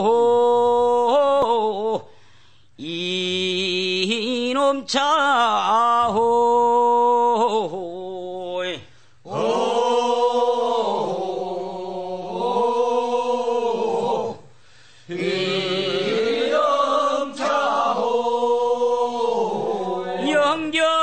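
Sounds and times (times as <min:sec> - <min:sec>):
unaccompanied voices singing: 0:09.2 - 0:21.0.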